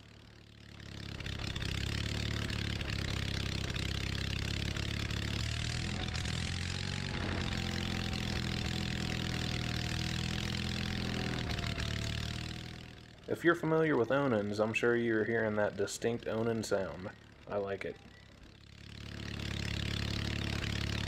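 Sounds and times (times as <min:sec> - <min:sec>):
unmuffled engine running: 0:00.0 - 0:21.0.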